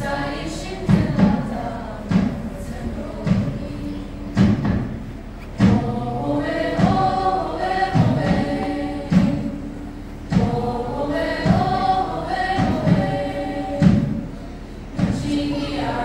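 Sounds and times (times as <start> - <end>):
low thumping beat: 0.0 - 16.0
mixed choir singing: 0.0 - 16.0.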